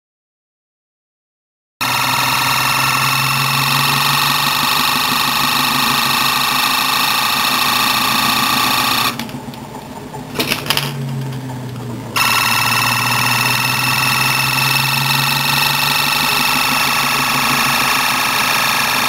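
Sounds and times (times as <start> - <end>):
motor high whine: 1.8 - 19.0.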